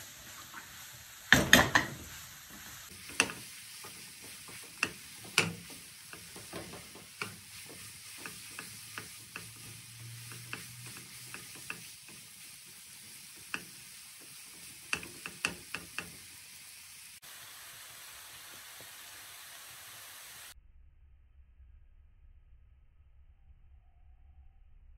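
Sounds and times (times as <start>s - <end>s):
food sizzling in a pan: 0.0s - 20.6s
spatula knocking against pan: 2.9s - 12.4s, 13.4s - 16.3s.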